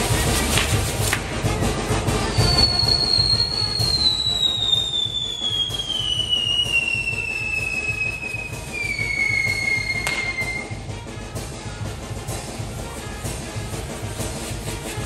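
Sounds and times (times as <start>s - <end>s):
fireworks spraying and crackling: 0.0s - 10.9s, 12.5s - 15.0s
whistling firework: 2.2s - 10.9s.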